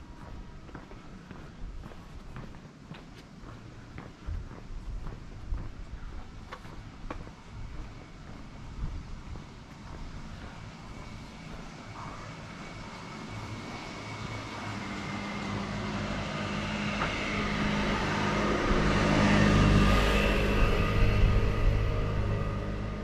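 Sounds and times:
vehicle engine approaching: 5.0s - 23.0s.

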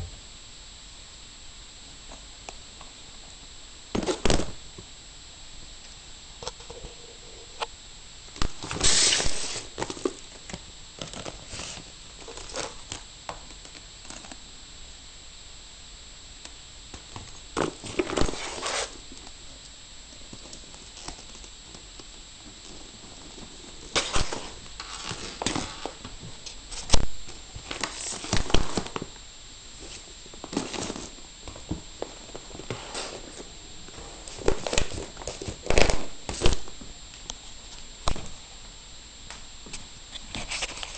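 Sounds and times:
steady low hiss: 0.0s - 40.9s
plastic wrapping crinkling: 8.4s - 14.4s, 20.4s - 29.1s, 29.7s - 36.8s.

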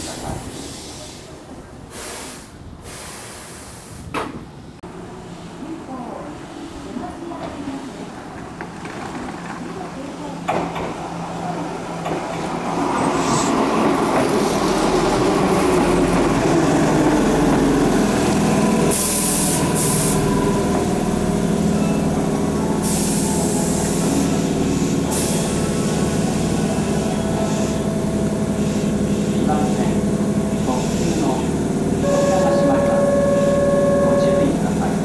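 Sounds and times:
air brakes hissing: 0.4s - 4.1s, 22.8s - 25.6s.

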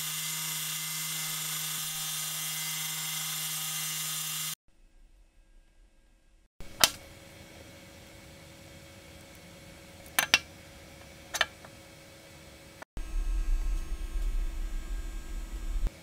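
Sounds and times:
faint steady hum: 4.7s - 16.0s.

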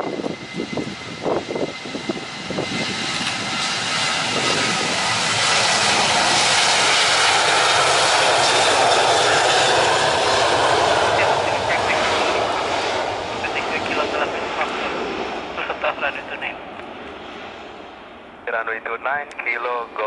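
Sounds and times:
jet engines at high power: 0.0s - 20.0s.

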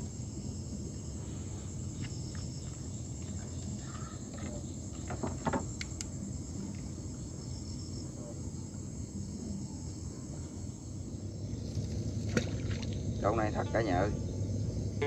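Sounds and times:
crickets and insects chirping: 0.0s - 15.0s
knocks of fishing gear on wood: 5.0s - 5.7s
low background rumble: 8.9s - 15.0s.

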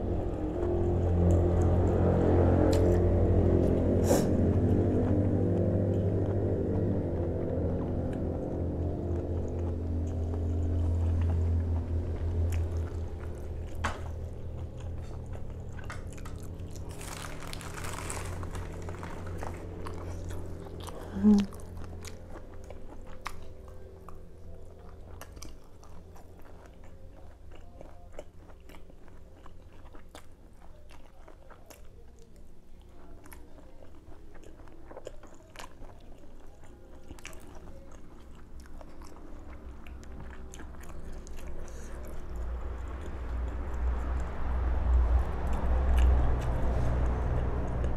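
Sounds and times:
low tone: 0.0s - 25.5s
chewing and crunching food: 0.0s - 47.9s
mouth sounds: 20.9s - 21.8s.

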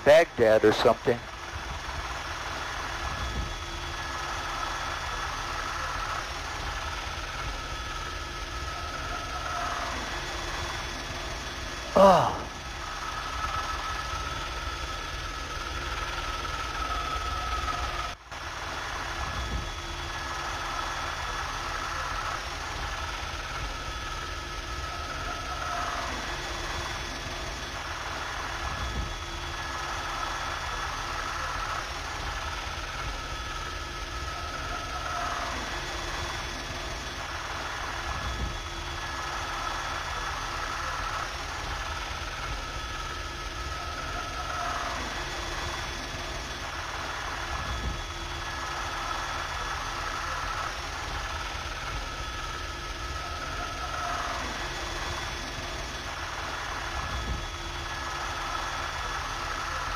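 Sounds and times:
helicopter engine and rotor: 0.0s - 59.9s.

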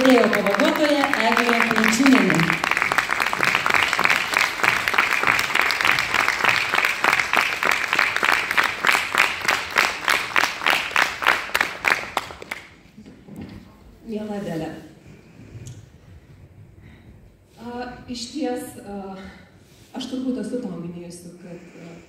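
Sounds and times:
audience applauding: 0.0s - 12.8s
rhythmic clapping: 0.0s - 12.8s.

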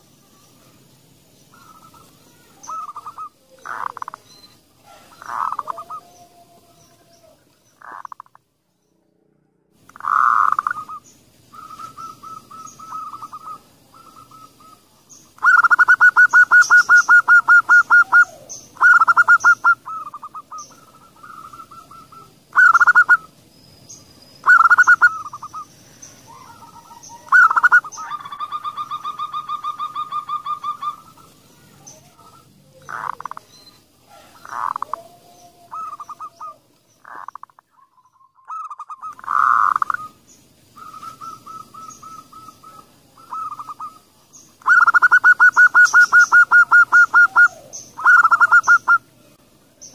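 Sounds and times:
doves cooing: 1.5s - 8.4s, 9.9s - 23.4s, 24.4s - 49.1s.

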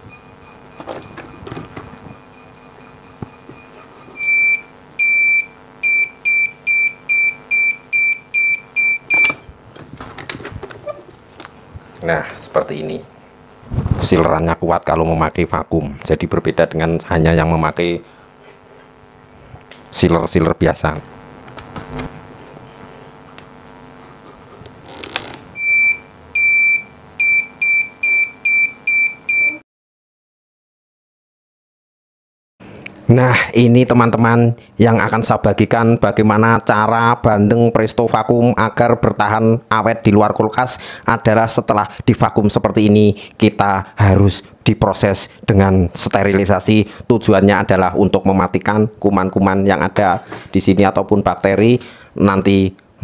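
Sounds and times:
vacuum sealer beeping: 0.0s - 9.6s, 24.8s - 29.6s.

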